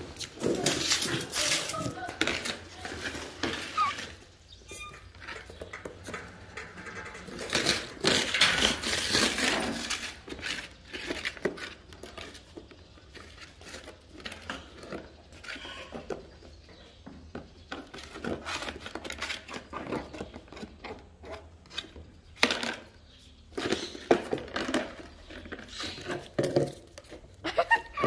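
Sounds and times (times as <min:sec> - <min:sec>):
plastic basket scraping on tiles: 0:00.4 - 0:04.4, 0:06.0 - 0:12.6.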